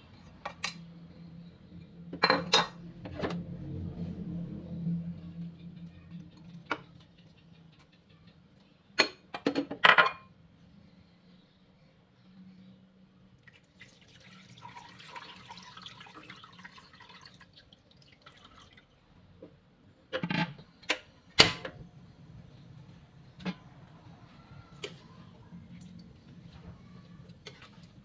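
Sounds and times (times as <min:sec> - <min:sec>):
kitchenware knocking and clattering: 0:02.1 - 0:03.4, 0:09.0 - 0:10.3
liquid pouring into a wok: 0:13.5 - 0:19.0.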